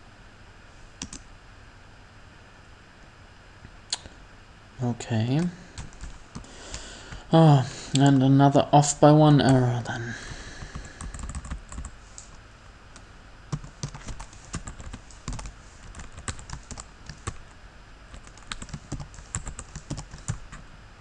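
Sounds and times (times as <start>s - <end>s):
computer keyboard typing: 1.0s - 1.2s, 5.4s - 7.2s, 10.6s - 12.4s, 13.5s - 17.5s, 18.1s - 20.6s.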